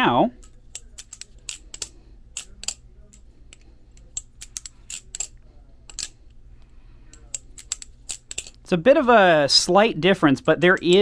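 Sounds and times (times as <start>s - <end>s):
butterfly knife clicking: 0.4s - 6.2s, 7.1s - 8.6s.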